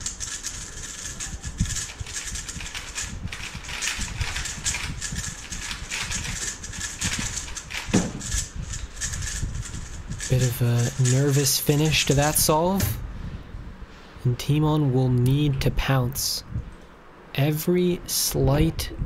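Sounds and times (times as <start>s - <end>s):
puzzle cube clicking and clacking: 0.0s - 12.5s.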